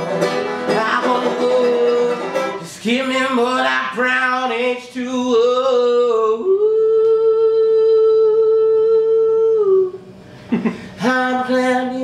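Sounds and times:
man singing a long note: 0.7 - 10.0.

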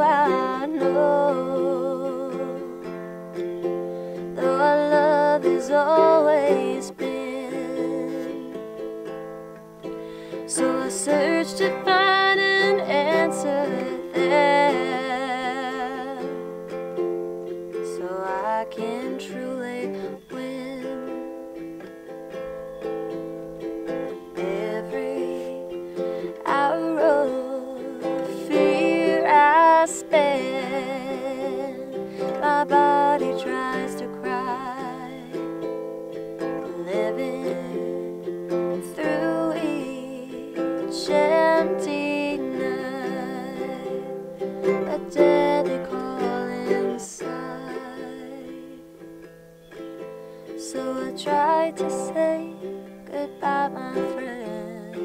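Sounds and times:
woman singing a slow ballad: 0.0 - 3.0, 4.1 - 9.2, 9.8 - 16.7, 17.7 - 21.5, 24.1 - 35.7, 36.4 - 49.0, 50.4 - 55.0
strummed ukulele: 0.0 - 55.0.

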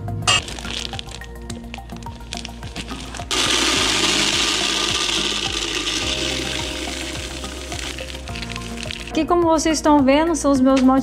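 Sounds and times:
grains pouring into plastic bucket: 0.4 - 9.2.

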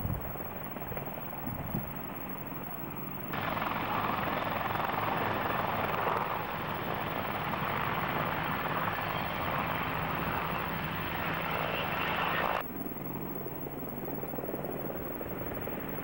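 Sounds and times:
helicopter rotor and turbine: 0.0 - 16.0.

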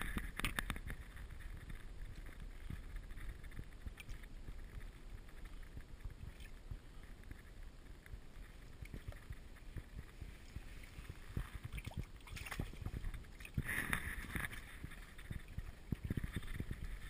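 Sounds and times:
fish splashing in water: 8.8 - 17.0.

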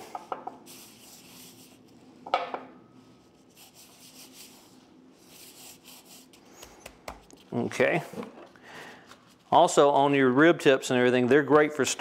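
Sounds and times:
hands rubbing and patting meat: 5.8 - 7.8.

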